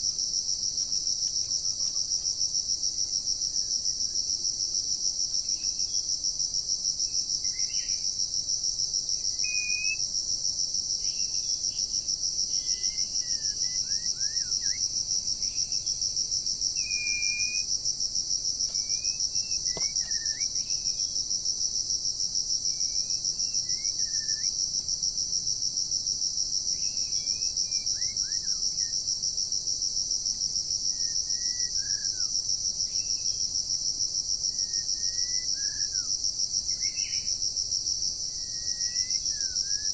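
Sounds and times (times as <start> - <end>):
pulsing insect chorus: 0.0 - 39.9
bird chirps and whistles: 16.8 - 17.7.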